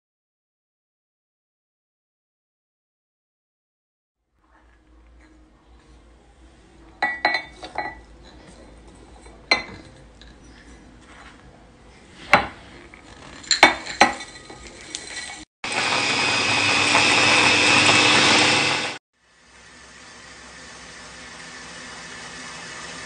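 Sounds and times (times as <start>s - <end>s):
ceramic bowls clinking on glass: 7.0s - 11.3s, 13.4s - 15.4s
electric chopper motor grinding: 15.6s - 19.0s, 19.6s - 23.0s.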